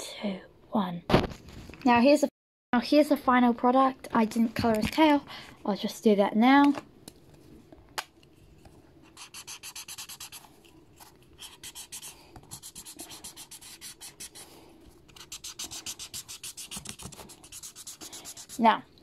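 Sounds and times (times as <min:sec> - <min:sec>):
highlighter scribbling on paper: 0:09.1 - 0:10.5, 0:11.4 - 0:18.7.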